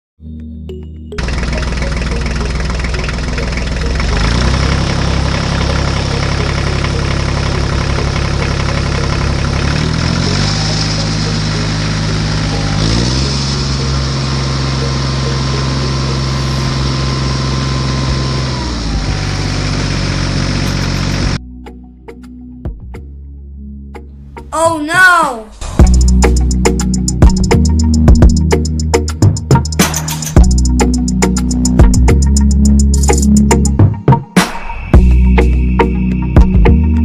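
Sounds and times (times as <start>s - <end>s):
tractor engine running: 0.8s - 21.4s, 25.6s - 33.8s.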